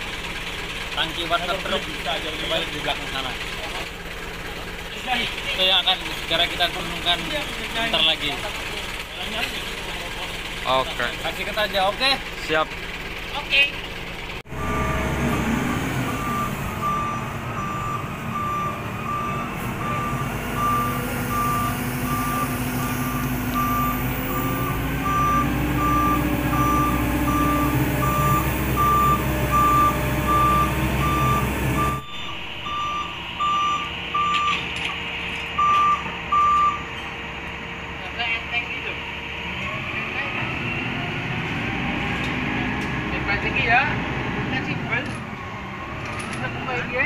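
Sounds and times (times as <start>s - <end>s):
diesel engine running low: 0.0s - 47.0s
truck reversing alarm beeping: 13.9s - 39.4s, 45.3s - 47.0s.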